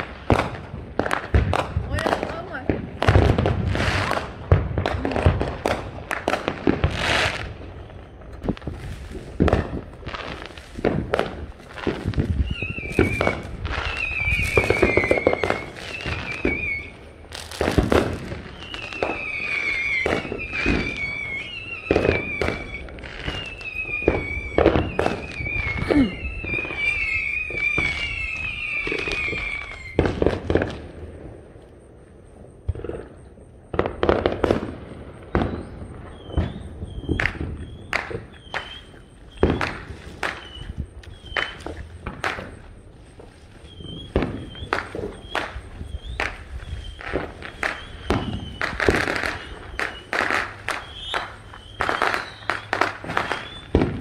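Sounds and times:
fireworks bangs and crackling pops: 0.0s - 54.0s
warbling falling whistles: 12.3s - 17.3s, 18.2s - 30.1s, 34.8s - 41.9s, 43.5s - 54.0s.

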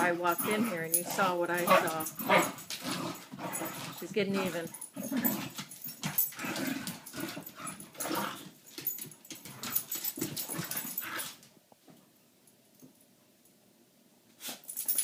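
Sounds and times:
dogs growling: 0.0s - 8.6s, 9.5s - 11.4s
dogs scuffling: 0.0s - 12.0s.

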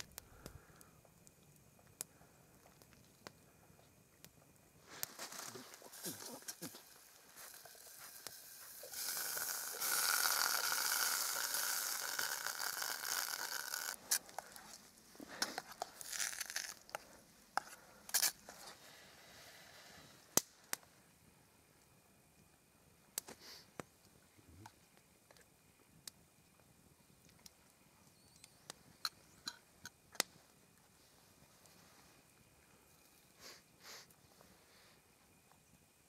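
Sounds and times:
food sizzling in a metal tin: 4.8s - 14.4s, 15.6s - 16.8s.

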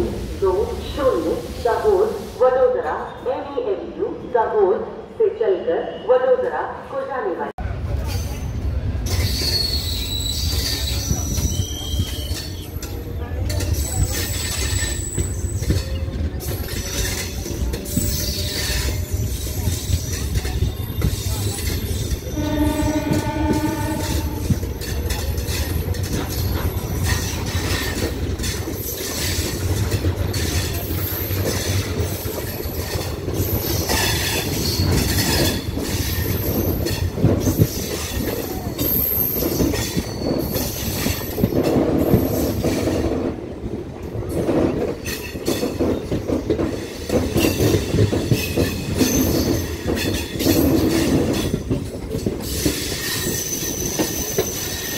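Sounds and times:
train wheels rumbling on rail: 7.6s - 54.9s
high wheel squeal: 8.1s - 12.8s, 13.8s - 28.0s, 37.5s - 41.4s, 52.4s - 54.9s.

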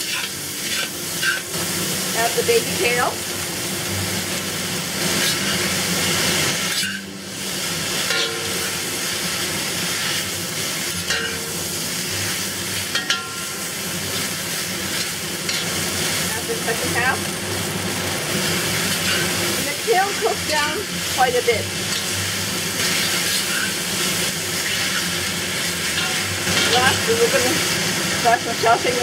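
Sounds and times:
spatula scraping pan: 0.0s - 1.4s, 5.0s - 5.7s, 18.8s - 20.8s, 22.8s - 27.4s
vegetables sizzling in wok: 0.0s - 29.0s.

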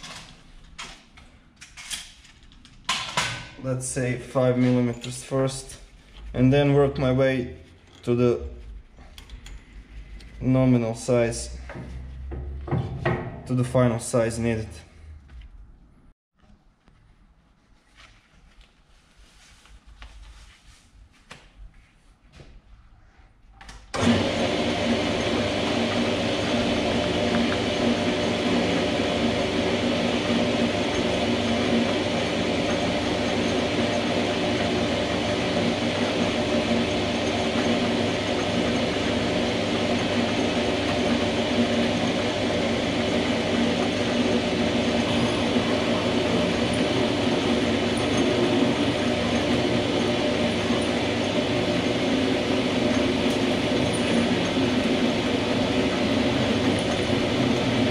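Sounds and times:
drill feeding into steel screw: 24.0s - 57.9s
metal lathe running: 24.0s - 57.9s.

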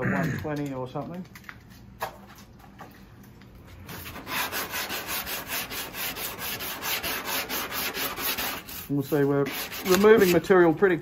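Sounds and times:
sandpaper rubbing back and forth: 3.9s - 10.7s.

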